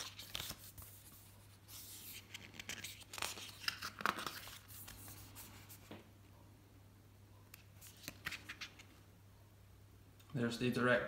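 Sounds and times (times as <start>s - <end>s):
paper pages turning: 0.0s - 5.9s, 7.6s - 9.0s.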